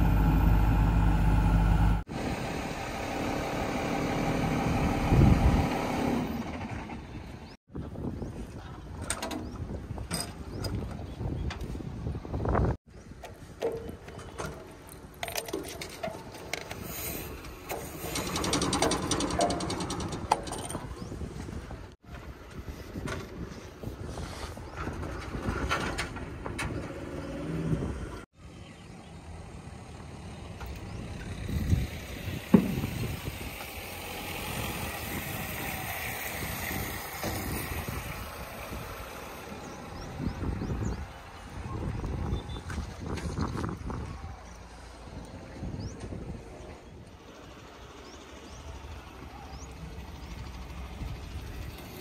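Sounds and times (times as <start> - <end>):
wind rumbling on microphone: 4.8 - 14.1, 15.0 - 28.2, 30.8 - 47.4, 49.5 - 52.0.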